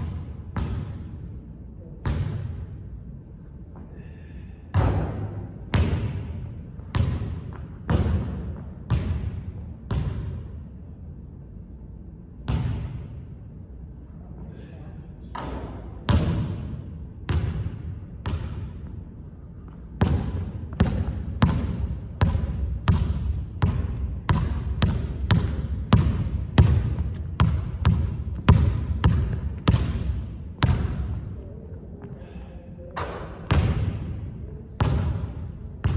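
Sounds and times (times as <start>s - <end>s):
basketball bouncing on wooden floor: 5.7s - 10.4s, 20.0s - 31.2s.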